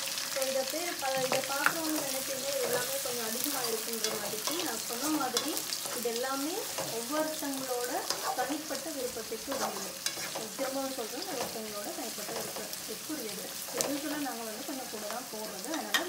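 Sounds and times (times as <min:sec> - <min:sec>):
food sizzling in hot oil: 0:00.0 - 0:16.0
wooden spatula scraping metal pan: 0:08.0 - 0:08.6, 0:09.4 - 0:12.8.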